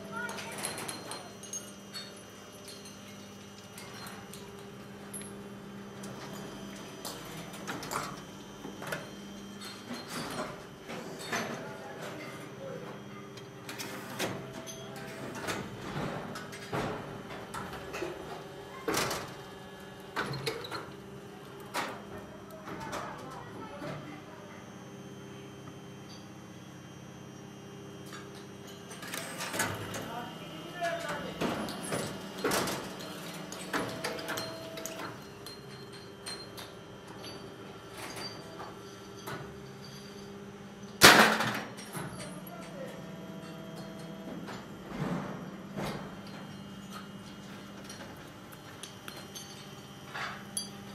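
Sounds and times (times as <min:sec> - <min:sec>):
die-casting machine humming: 0:00.0 - 0:50.9.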